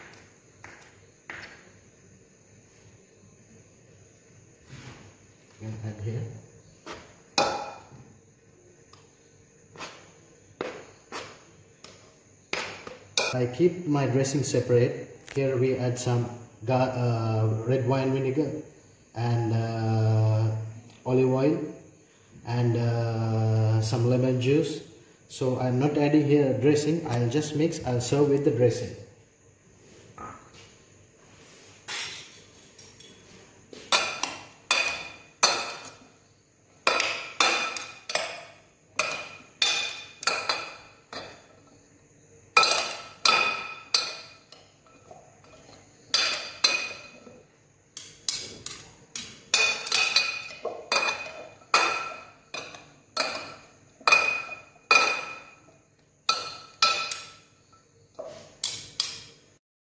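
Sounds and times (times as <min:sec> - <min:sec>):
utensils clinking against bowl: 0:36.8 - 0:41.7, 0:42.6 - 0:47.4, 0:48.0 - 0:55.7, 0:56.3 - 0:57.9.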